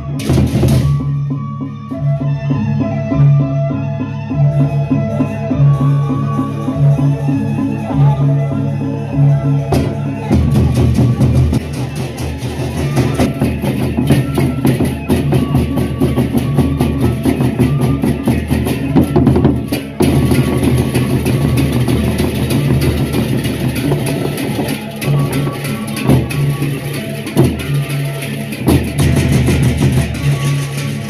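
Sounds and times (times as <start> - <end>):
barrel drums beating: 0.0 - 1.4, 9.6 - 31.0
hand cymbals clashing: 11.6 - 31.0.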